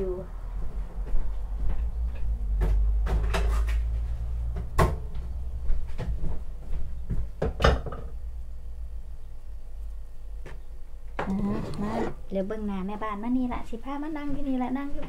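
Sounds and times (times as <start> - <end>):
low steady hum: 0.0 - 15.0
kitchen knocks and clunks: 2.6 - 3.8, 4.5 - 5.1, 7.1 - 8.2.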